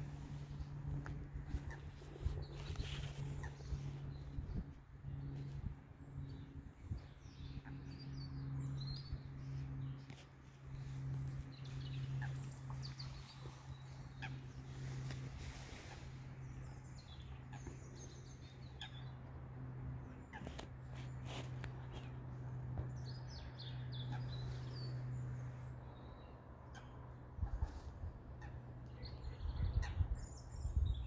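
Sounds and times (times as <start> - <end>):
steady low hum: 0.0 - 31.0
starlings chirping: 10.8 - 19.2, 22.8 - 26.9.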